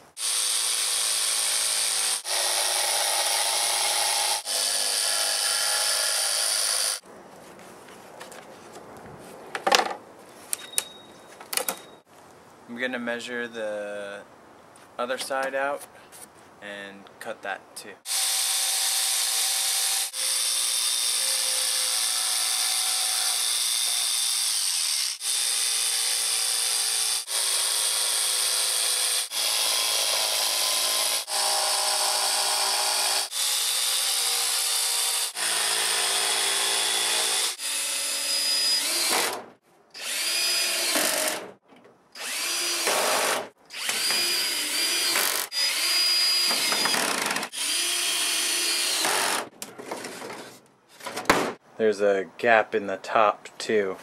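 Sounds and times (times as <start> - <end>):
jigsaw cutting plywood: 0.2 - 7.0, 18.1 - 39.4, 42.2 - 49.5
cordless drill whining: 18.1 - 39.4, 40.0 - 41.4, 42.2 - 49.4.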